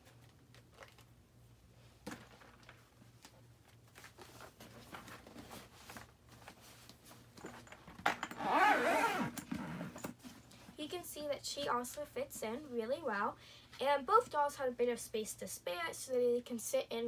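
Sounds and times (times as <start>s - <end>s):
faint rustling and knocks: 1.8s - 8.4s, 9.4s - 10.9s
zipper being pulled: 8.3s - 10.2s.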